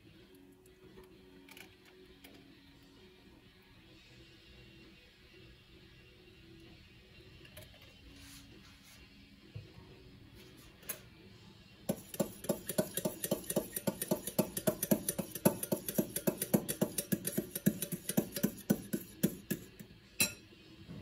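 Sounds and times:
spoon clinking against glass bowl: 0:11.9 - 0:20.5.

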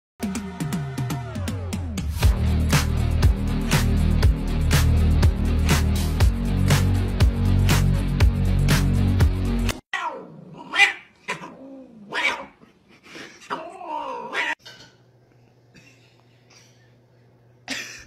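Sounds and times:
cats yowling in a fight: 0:09.9 - 0:12.6, 0:13.5 - 0:14.6.

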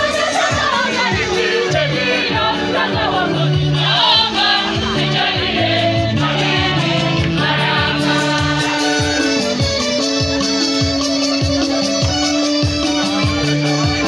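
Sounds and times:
youth choir singing a hymn: 0:00.0 - 0:09.6
electronic keyboard bass notes: 0:00.0 - 0:14.0.

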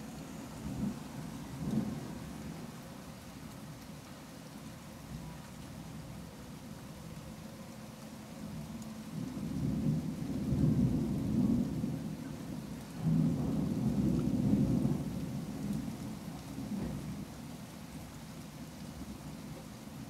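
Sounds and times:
rolling thunder: 0:00.0 - 0:02.7, 0:09.2 - 0:17.3.

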